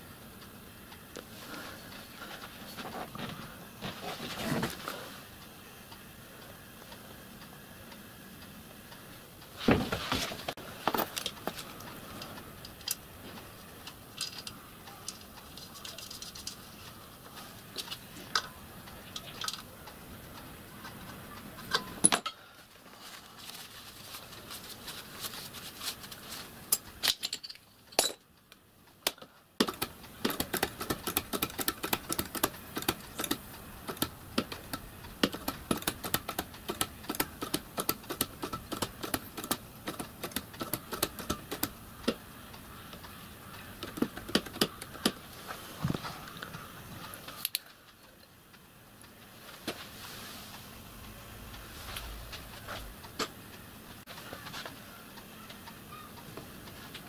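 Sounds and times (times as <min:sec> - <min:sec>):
hand pump clicking and rattling: 0:29.6 - 0:41.8
pipe fittings clicking: 0:47.4 - 0:47.6.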